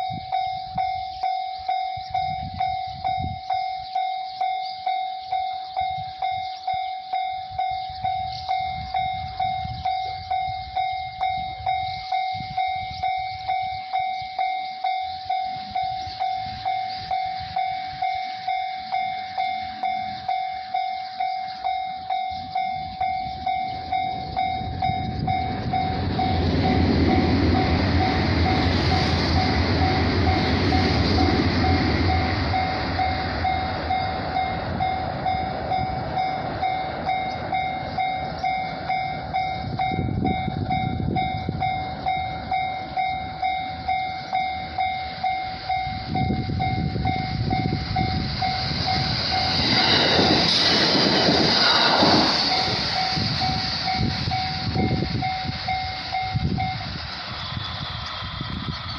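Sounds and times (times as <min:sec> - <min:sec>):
electric train passing: 0:00.0 - 0:58.9
level-crossing electronic bell: 0:00.0 - 0:58.9
low rumble: 0:21.6 - 0:58.9.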